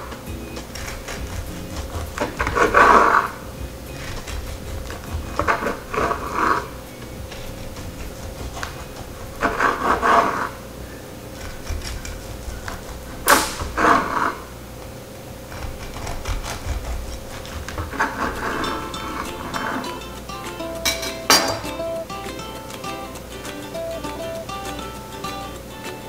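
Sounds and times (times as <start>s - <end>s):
knife sawing through rice cake: 0.7s - 6.7s, 7.3s - 10.5s, 11.4s - 14.4s, 15.5s - 18.8s.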